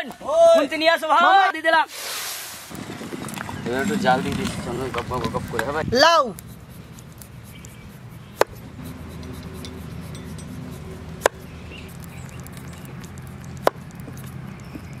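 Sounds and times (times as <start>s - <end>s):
low steady hum: 3.1s - 15.0s.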